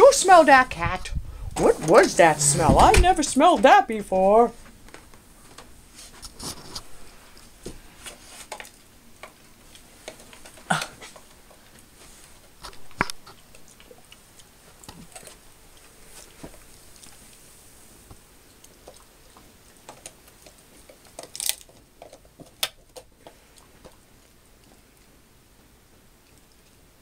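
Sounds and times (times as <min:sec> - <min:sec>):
dog chewing and gnawing: 0:08.4 - 0:17.4, 0:18.4 - 0:25.2.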